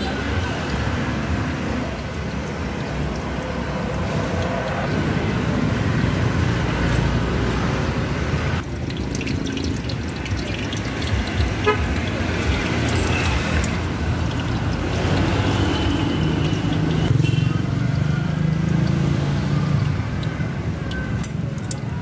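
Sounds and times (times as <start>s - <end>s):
road traffic rushing: 0.0s - 22.0s.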